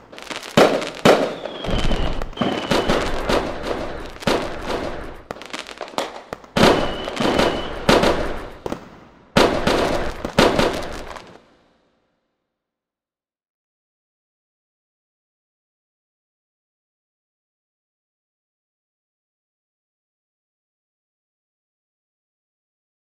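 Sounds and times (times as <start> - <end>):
firework whistles: 0.0 - 11.4
fireworks bangs and crackling: 0.0 - 11.4.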